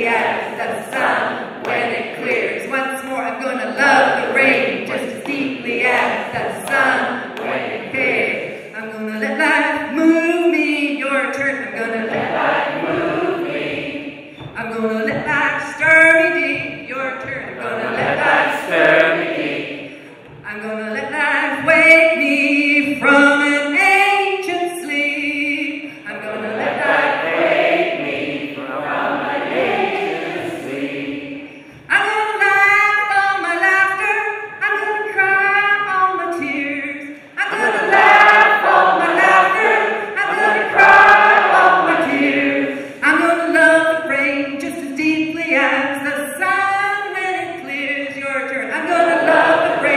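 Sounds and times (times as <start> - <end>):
group singing back: 0.0 - 10.3, 11.3 - 20.4, 26.0 - 31.9, 37.4 - 43.0, 48.6 - 49.9
woman singing: 0.0 - 13.6, 14.4 - 18.8, 20.3 - 27.2, 31.5 - 49.9.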